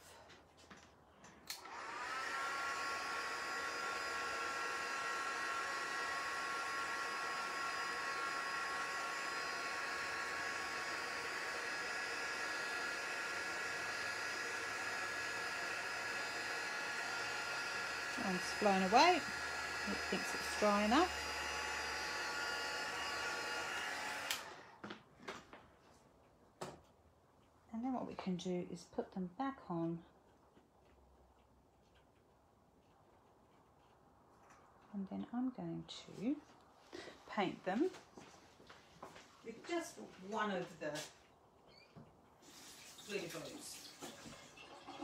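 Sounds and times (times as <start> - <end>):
electric air dryer whining: 1.4 - 25.0.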